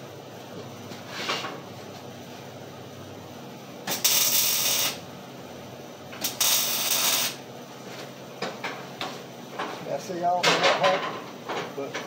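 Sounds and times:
welder crackling hiss: 0:03.9 - 0:05.0, 0:06.2 - 0:07.4.

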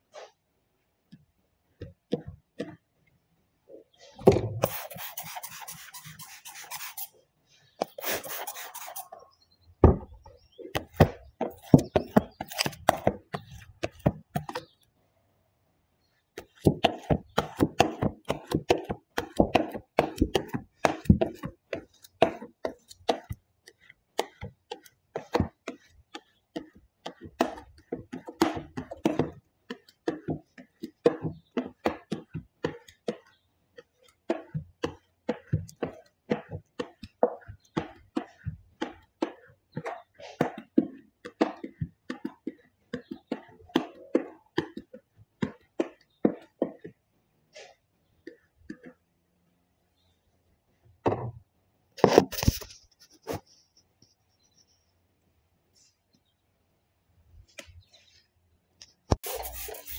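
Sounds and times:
squeegee rubbing and squeaking: 0:04.0 - 0:09.4, 0:59.2 - 0:59.9.

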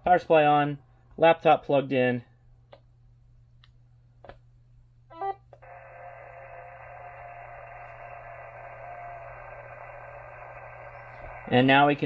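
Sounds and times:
low constant hum: 0:00.0 - 0:12.0
radio receiver hiss: 0:05.6 - 0:12.0.

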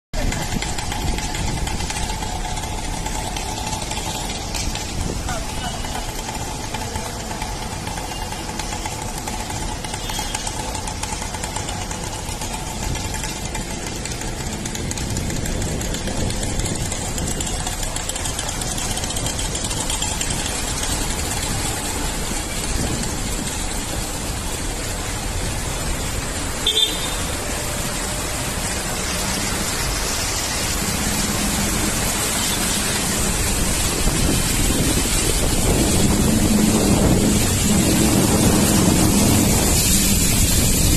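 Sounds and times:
vehicle engine: 0:00.2 - 0:40.9
short horn beep: 0:26.6 - 0:27.3.

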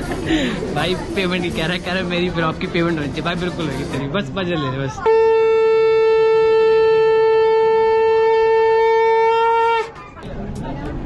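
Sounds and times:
conch shell blown: 0:05.0 - 0:10.0.

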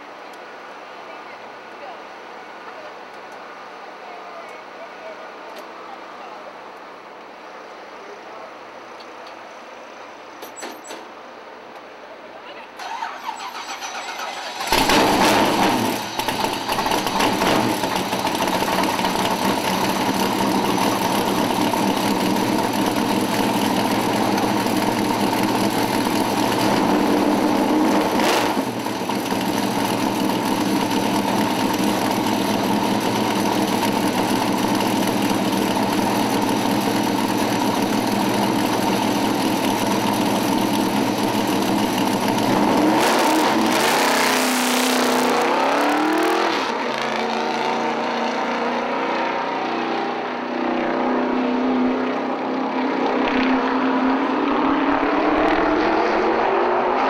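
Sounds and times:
car engine starting and idling: 0:12.8 - 0:44.4.

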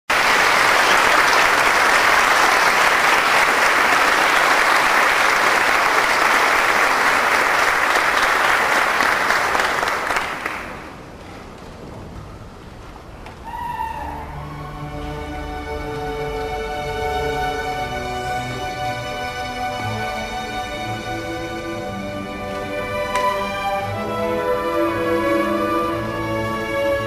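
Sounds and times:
audience applauding: 0:00.1 - 0:11.0.

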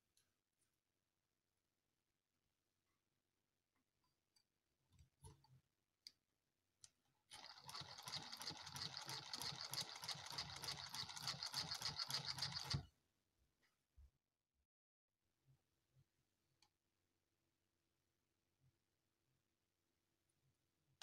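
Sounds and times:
model steam engine whirring and ticking: 0:07.3 - 0:12.8.

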